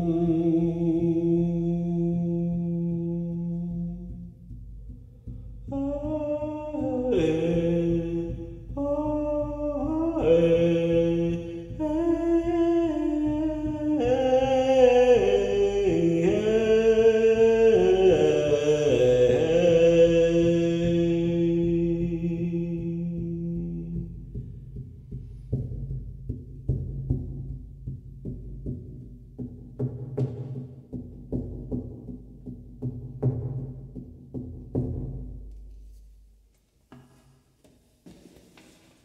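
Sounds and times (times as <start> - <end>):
man singing a melodic chant: 0.0 - 4.2, 5.7 - 24.2
steady low drone: 0.0 - 13.7.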